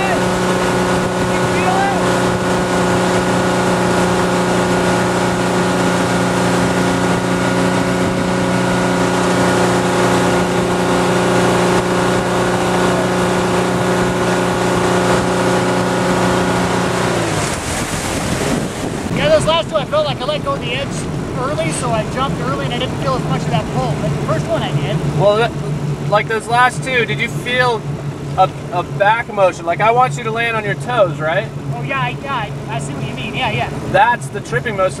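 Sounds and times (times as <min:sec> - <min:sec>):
wind rushing: 0:00.0 - 0:24.3
boat engine running: 0:00.0 - 0:35.0
wake water rushing: 0:00.0 - 0:35.0.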